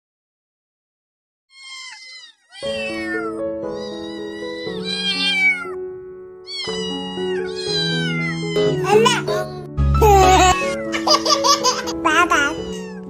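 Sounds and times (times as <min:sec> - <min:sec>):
kittens meowing: 0:01.5 - 0:05.8, 0:06.4 - 0:13.0
background music with sustained notes: 0:02.7 - 0:13.0.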